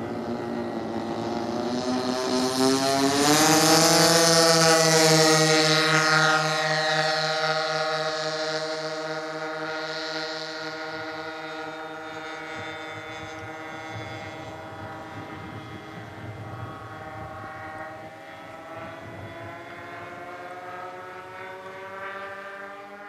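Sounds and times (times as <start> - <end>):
model plane engines droning: 0.0 - 23.0.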